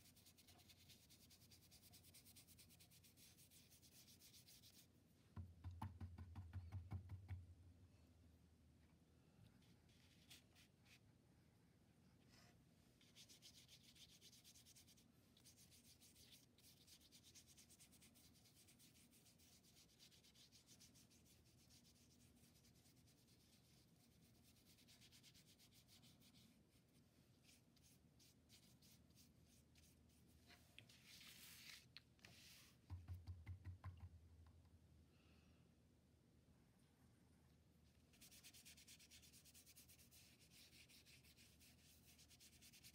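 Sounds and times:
paintbrush scratching on paper: 0.0 - 4.9, 13.0 - 32.8, 38.1 - 42.9.

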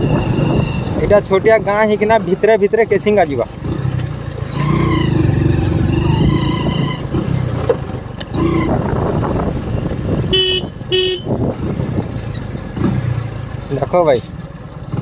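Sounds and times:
motorcycle engine and road rumble: 0.0 - 15.0
vehicle horn short beeps: 10.3 - 11.4.

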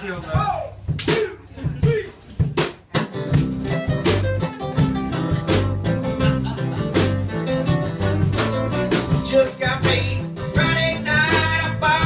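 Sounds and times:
live country band playing: 2.9 - 12.0.

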